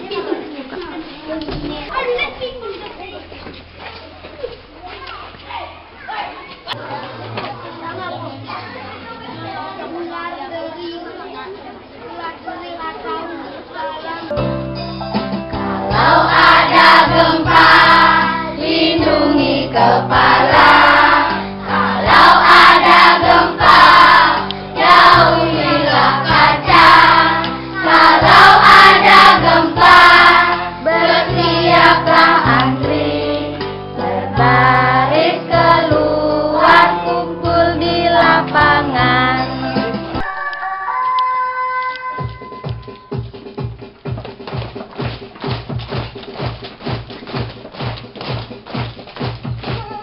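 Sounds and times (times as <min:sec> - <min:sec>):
backing music: 0:14.3 - 0:40.6, 0:41.4 - 0:50.0
children singing in chorus: 0:15.6 - 0:39.2.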